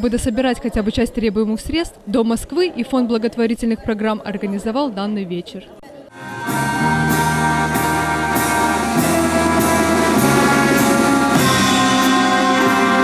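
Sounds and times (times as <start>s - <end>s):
military band playing: 6.2s - 13.0s.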